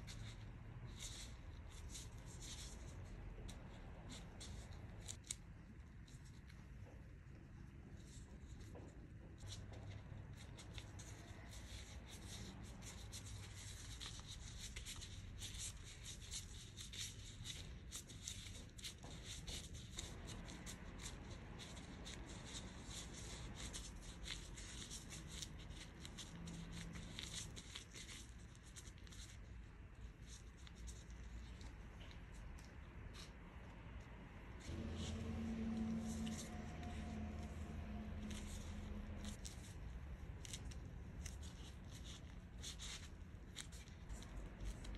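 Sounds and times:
plastic gloves crinkling: 0:34.7 - 0:44.9.

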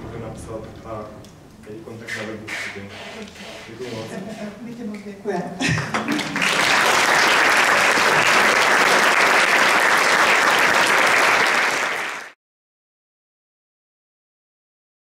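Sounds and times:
audience applauding: 0:05.9 - 0:12.4.

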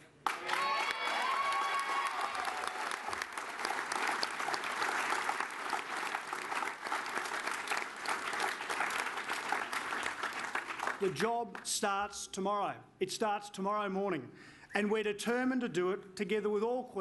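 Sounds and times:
crowd applauding: 0:00.0 - 0:11.3.

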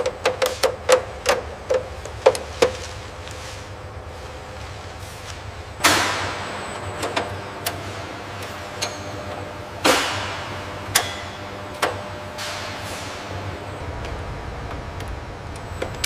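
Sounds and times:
low steady hum: 0:00.0 - 0:16.0
metal clanks and taps: 0:10.9 - 0:12.6.

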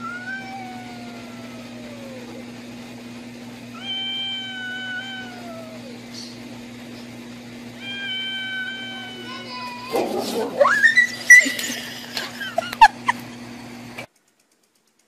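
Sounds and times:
cat yowling: 0:00.0 - 0:02.5, 0:03.7 - 0:06.4, 0:07.8 - 0:11.7.

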